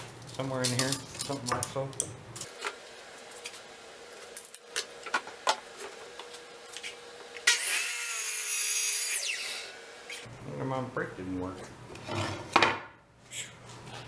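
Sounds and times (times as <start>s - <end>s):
tools being handled: 0.0s - 3.6s
miter saw cutting wood: 7.4s - 10.2s.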